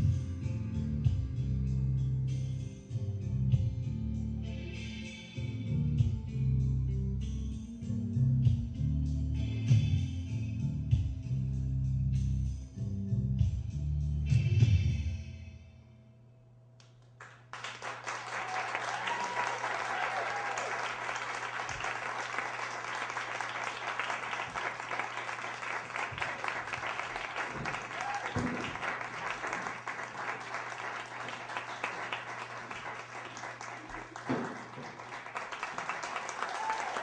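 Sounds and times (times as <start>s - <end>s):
audience applause: 17.2s - 37.0s
whoops and cheers: 18.1s - 21.1s, 27.7s - 28.8s, 36.0s - 37.0s.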